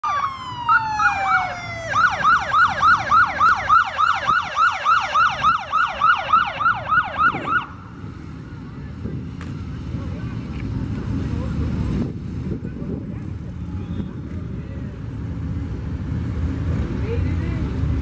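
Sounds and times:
police siren wailing and yelping: 0.0s - 7.8s
motorcycle engine rumble: 0.0s - 18.0s.

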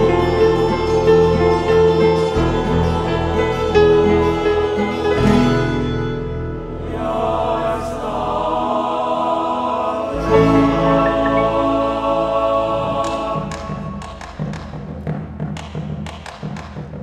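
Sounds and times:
acoustic guitar: 0.0s - 7.0s, 10.1s - 12.0s
tiple strumming: 0.0s - 7.0s
bass: 0.0s - 8.7s, 10.1s - 17.0s
choir singing wordless chords: 0.0s - 14.9s.

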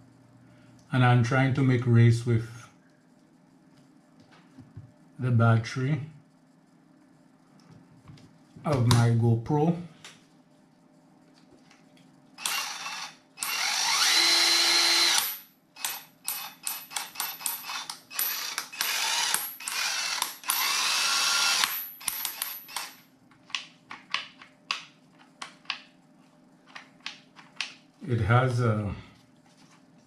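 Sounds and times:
impact wrench whining: 12.4s - 23.1s.

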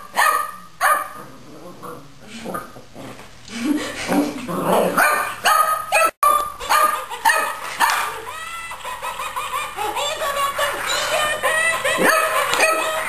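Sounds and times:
puppy barking and yipping: 5.0s - 8.2s, 11.9s - 13.0s
toy's high electronic voice: 10.0s - 13.0s.

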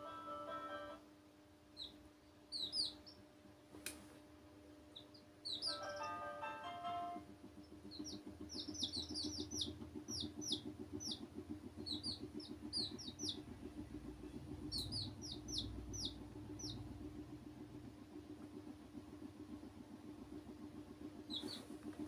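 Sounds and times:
steady low hum: 0.0s - 22.0s
chicks peeping: 1.8s - 3.3s, 4.9s - 6.7s, 7.5s - 17.2s, 20.6s - 21.8s.

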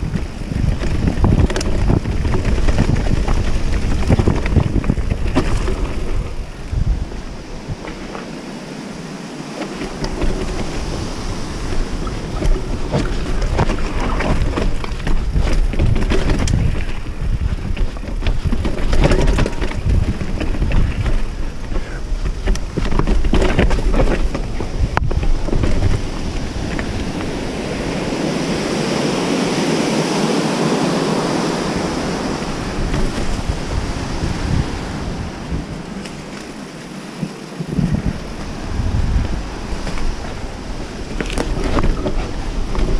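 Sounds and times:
bike knocking and rattling over rock: 0.0s - 8.3s, 9.6s - 11.0s, 11.6s - 28.0s, 35.5s - 42.9s
wind rushing over microphone: 0.0s - 42.9s.

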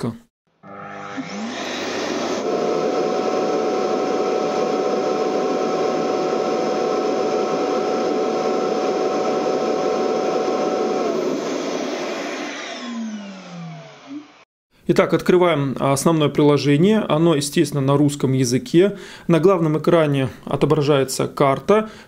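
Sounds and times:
suction motor whining: 0.6s - 14.4s.

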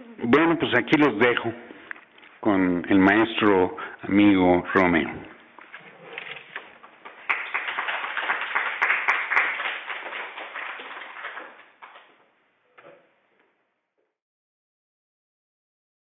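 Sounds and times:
audience applauding: 6.8s - 12.1s.

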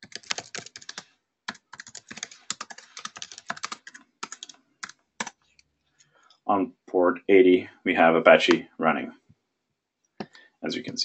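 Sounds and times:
typing on computer keyboard: 0.0s - 5.4s.

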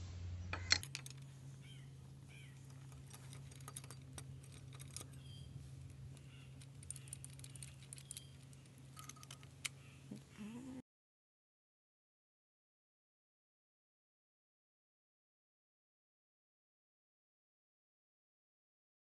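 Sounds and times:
steady low hum: 0.0s - 10.8s
spanner clicking on bolts: 6.2s - 9.8s.

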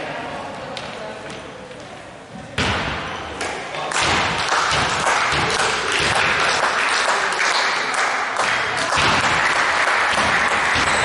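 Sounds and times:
spectators clapping: 3.9s - 11.0s.

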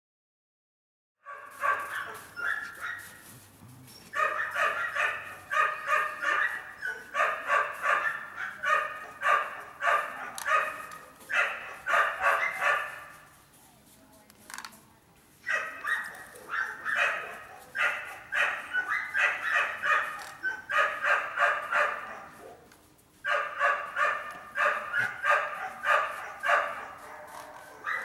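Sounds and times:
dog barking: 1.2s - 3.2s, 4.2s - 13.2s, 15.5s - 22.7s, 23.3s - 28.0s.

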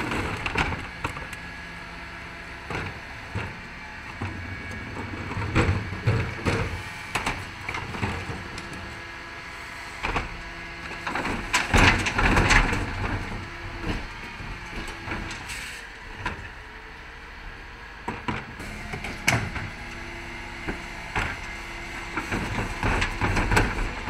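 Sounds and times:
truck engine running: 0.0s - 24.0s
bins banging and rattling: 4.2s - 8.5s, 11.0s - 14.1s, 20.7s - 24.0s
rubbish falling into hopper: 20.7s - 24.0s.

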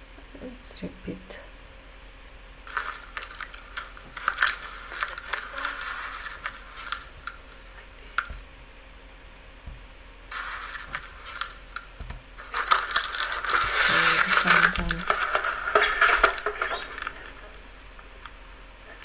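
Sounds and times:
rustling and rubbing: 2.6s - 8.5s, 10.3s - 19.0s.

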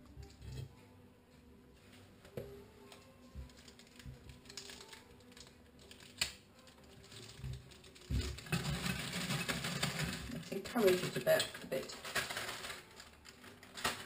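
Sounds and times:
plastic piping bag rustling: 3.4s - 14.0s.

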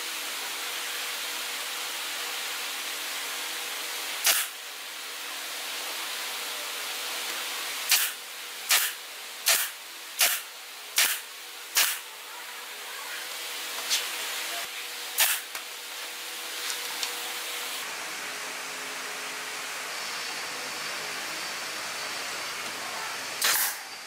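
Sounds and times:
pneumatic nail gun firing: 4.2s - 4.6s, 7.8s - 12.0s, 15.2s - 15.7s, 23.4s - 23.9s.

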